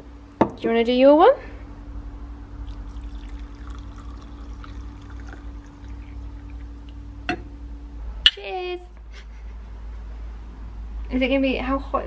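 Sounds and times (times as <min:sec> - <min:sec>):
liquid pouring into ceramic cup: 0:02.6 - 0:07.1.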